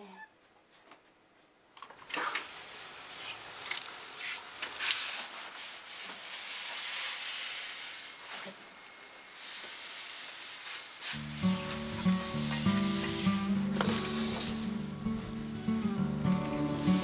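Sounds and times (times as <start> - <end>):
hose nozzle spraying water: 9.4 - 17.0.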